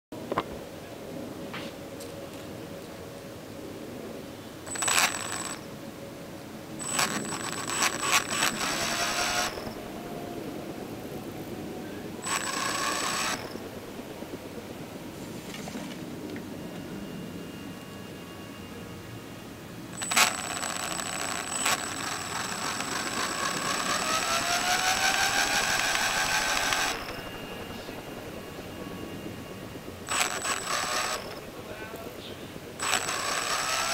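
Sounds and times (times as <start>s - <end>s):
motor high whine: 1.2s - 33.9s
motor gear rattling clatter: 6.8s - 10.0s, 12.2s - 14.4s, 20.0s - 31.4s, 32.7s - 33.9s.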